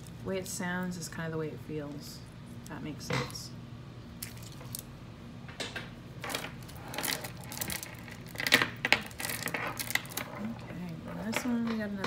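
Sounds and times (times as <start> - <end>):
stone beads clicking and clattering: 6.3 - 10.5.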